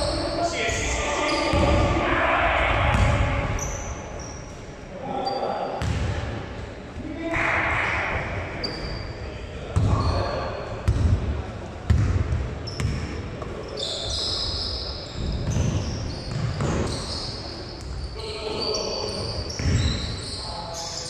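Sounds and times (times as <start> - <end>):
sneakers squeaking: 0.0 - 2.0, 2.8 - 6.2, 8.5 - 11.2, 11.9 - 21.0.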